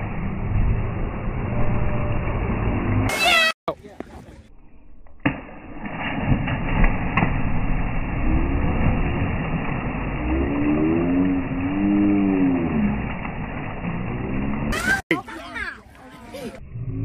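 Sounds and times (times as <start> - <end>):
deep slowed splash and rumble: 0.0 - 3.1, 4.3 - 15.0
low stretched-out voices: 14.8 - 16.6.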